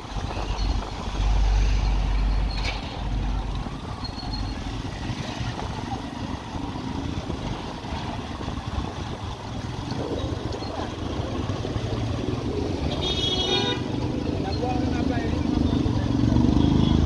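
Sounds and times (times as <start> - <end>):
wind rumbling on microphone: 0.0 - 14.5.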